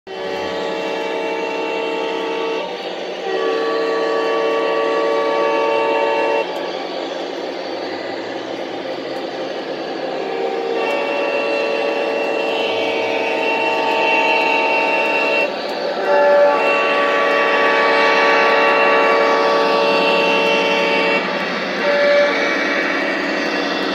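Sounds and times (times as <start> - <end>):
model train horn blasts: 0.1 - 6.6, 10.1 - 23.9.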